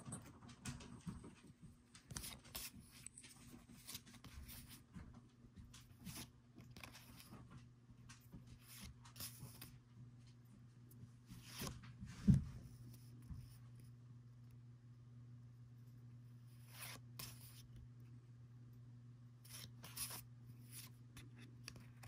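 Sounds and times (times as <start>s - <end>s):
low steady hum: 0.0s - 22.0s
cards sliding and swishing: 2.1s - 3.1s, 16.6s - 17.7s, 19.4s - 22.0s.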